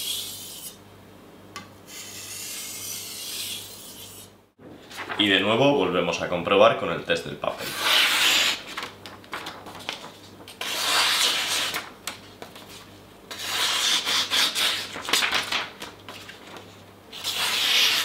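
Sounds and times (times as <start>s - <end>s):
paper rustling: 4.8s - 5.6s, 8.2s - 12.9s, 14.7s - 18.0s
knife slicing paper: 10.6s - 11.9s, 17.2s - 18.0s.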